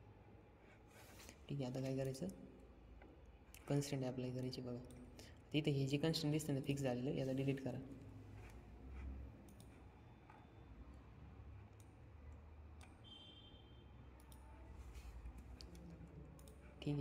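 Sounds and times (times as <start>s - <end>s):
computer mouse clicking: 9.4s - 10.4s, 11.7s - 13.0s, 14.2s - 17.0s.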